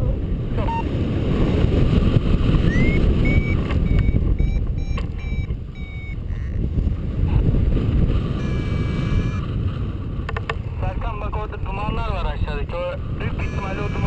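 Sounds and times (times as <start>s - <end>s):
wind buffeting microphone: 0.0s - 14.0s
short high variometer beeps: 0.6s - 0.9s, 2.6s - 6.6s, 8.4s - 9.5s, 13.2s - 14.0s.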